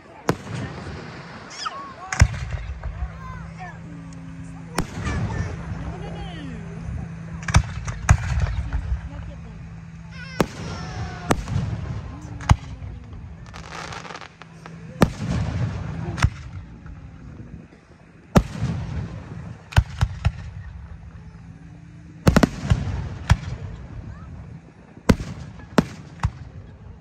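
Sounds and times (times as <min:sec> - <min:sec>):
firework crackle: 0:00.0 - 0:27.0
firework shells bursting: 0:00.3 - 0:21.2.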